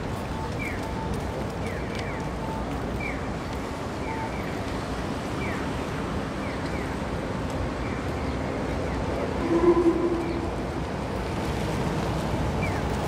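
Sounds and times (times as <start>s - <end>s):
city street noise: 0.0s - 13.0s
high chirps sliding down: 9.4s - 10.8s.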